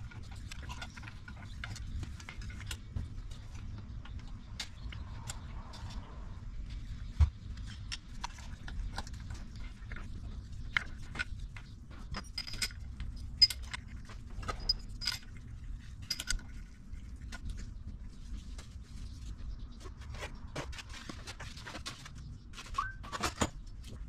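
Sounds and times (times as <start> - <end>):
low steady hum: 0.0 - 24.0
small metal parts clinking: 12.0 - 16.8.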